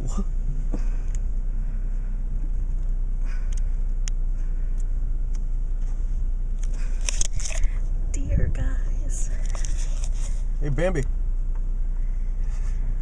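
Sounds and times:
car engine rumble inside cabin: 0.0 - 13.0
rustling: 9.1 - 10.7.

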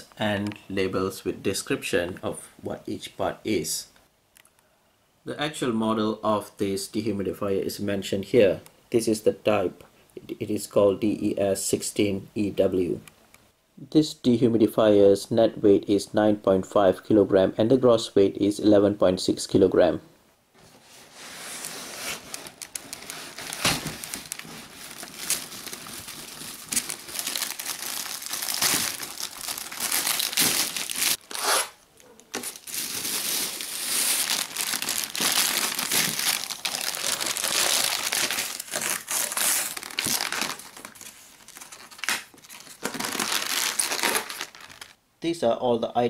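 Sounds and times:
plastic bag crinkling: 22.1 - 45.0.

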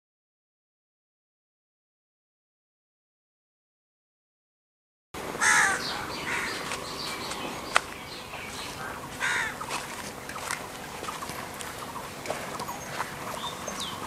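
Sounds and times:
crows cawing: 5.4 - 14.0.

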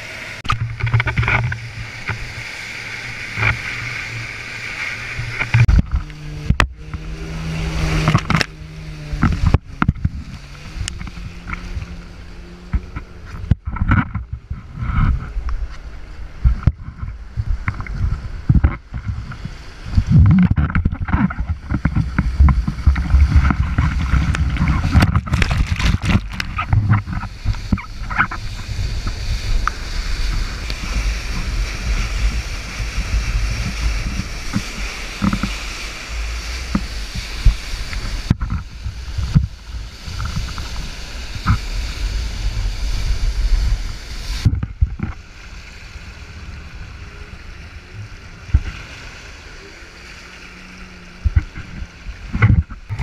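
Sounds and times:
river whitewater rushing: 0.0 - 13.4
water buffeting camera: 0.0 - 53.0.

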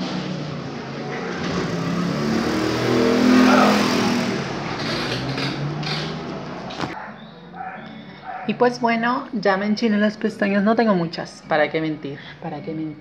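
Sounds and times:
passing vehicle engine: 0.0 - 8.9.

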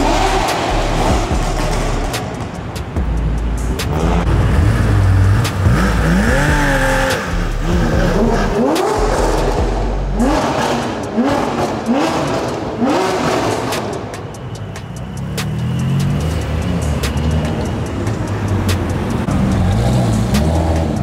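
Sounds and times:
car engine revving: 0.0 - 21.0.

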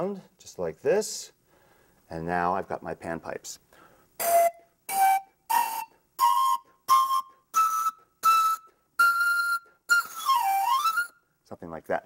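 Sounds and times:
breathy panpipe notes: 3.8 - 11.3.

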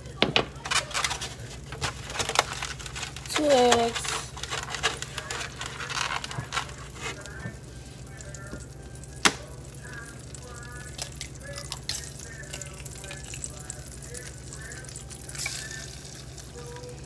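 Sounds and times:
low steady hum: 0.0 - 17.0
egg cracking on pan rim: 9.2 - 9.6.

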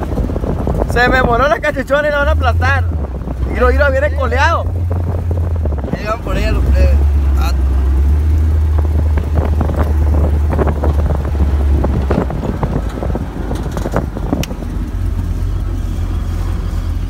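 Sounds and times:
buggy engine rumble: 0.0 - 17.0
wind on microphone: 0.0 - 17.0
knocks and rattles: 8.8 - 15.1.

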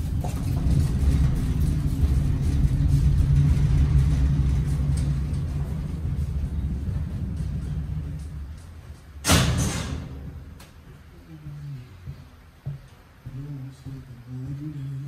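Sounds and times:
cage casters rolling on floor: 0.0 - 11.1.

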